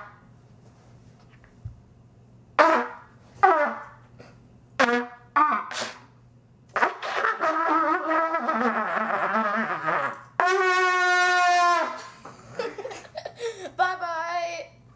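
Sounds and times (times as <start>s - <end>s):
trumpets playing wobbly notes: 2.6s - 4.0s, 4.8s - 6.0s, 6.8s - 12.2s.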